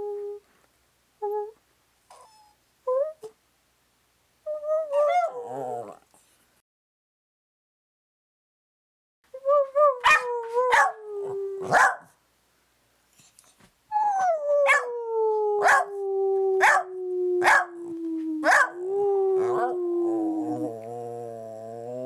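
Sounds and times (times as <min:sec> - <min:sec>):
dog barking sharply: 0:11.7 - 0:12.1
dog howling: 0:14.1 - 0:22.0.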